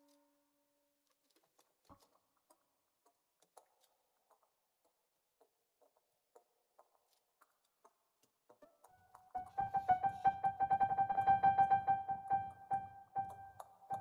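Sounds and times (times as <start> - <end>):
held musical note: 9.4 - 14.0.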